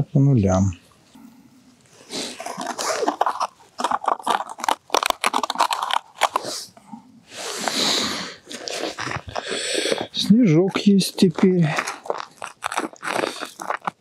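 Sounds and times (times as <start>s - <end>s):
snow and ice crunching: 2.1s - 6.7s, 8.5s - 14.0s.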